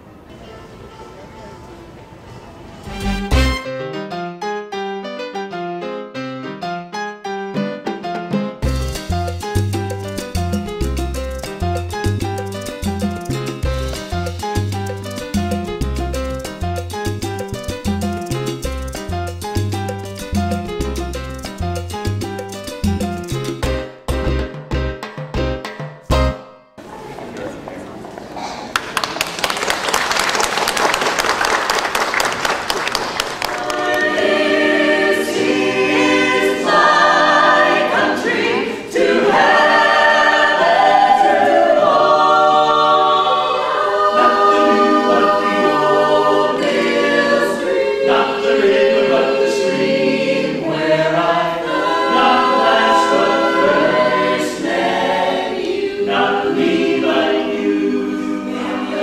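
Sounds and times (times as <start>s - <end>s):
audience clapping: 28.6s - 34.4s
choir singing unaccompanied: 33.5s - 59.0s.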